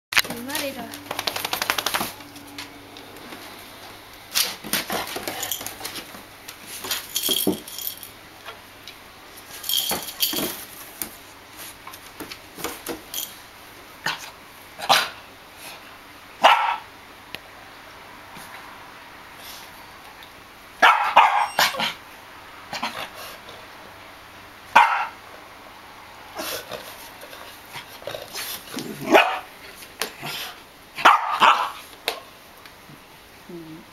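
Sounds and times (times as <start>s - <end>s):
dogs barking: 16.4s - 16.9s, 20.8s - 22.0s, 24.7s - 25.2s, 29.0s - 29.5s, 31.0s - 31.8s.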